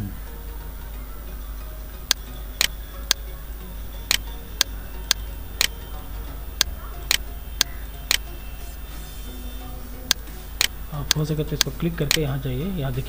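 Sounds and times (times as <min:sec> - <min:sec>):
low hum: 0:00.0 - 0:13.0
computer mouse clicking: 0:04.1 - 0:05.8, 0:06.6 - 0:08.3, 0:10.1 - 0:12.3.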